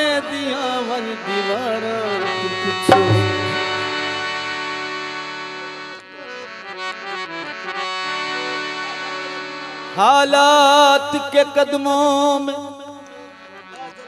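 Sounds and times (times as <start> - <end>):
man singing: 0.0 - 4.0, 10.0 - 13.5
harmonium playing chords: 0.0 - 14.0.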